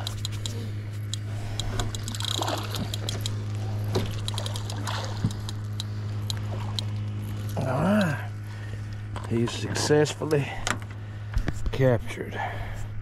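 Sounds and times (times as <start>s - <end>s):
water splashing and sloshing: 0.0s - 10.2s
steady low hum: 0.0s - 13.0s.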